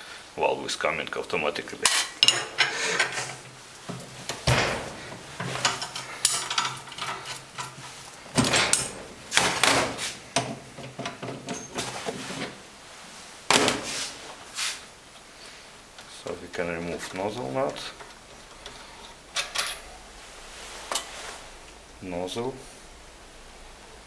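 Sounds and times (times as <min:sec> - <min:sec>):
metal tools clanking and knocking: 0:01.8 - 0:12.0, 0:17.0 - 0:20.0
metal parts scraping: 0:01.9 - 0:10.2, 0:18.5 - 0:20.0.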